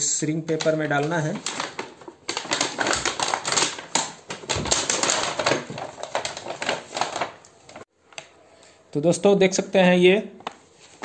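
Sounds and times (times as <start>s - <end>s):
plastic sleeve crinkling: 0.5s - 7.9s.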